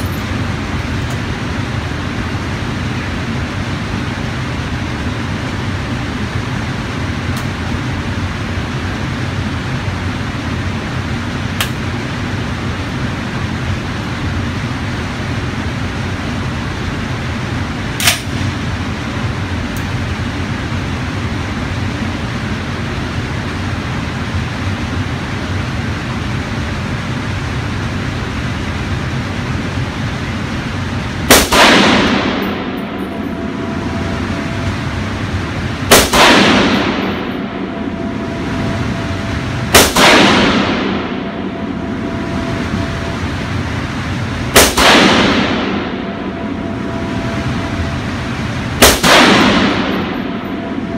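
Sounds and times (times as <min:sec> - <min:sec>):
steady background noise: 0:00.0 - 0:50.9
sharp click: 0:11.6 - 0:11.8
rifle shots echoing indoors: 0:18.0 - 0:19.0, 0:31.2 - 0:50.9.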